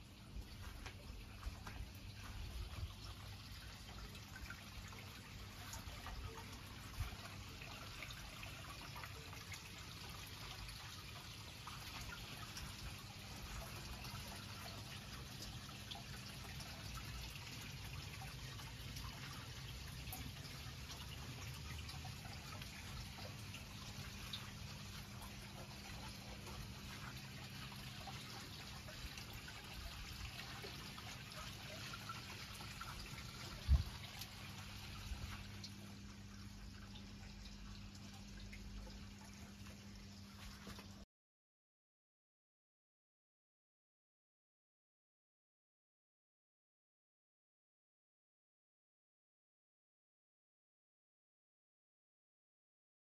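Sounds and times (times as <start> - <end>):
thin steady hum: 0.0 - 41.0
water trickling into pond: 0.0 - 41.1.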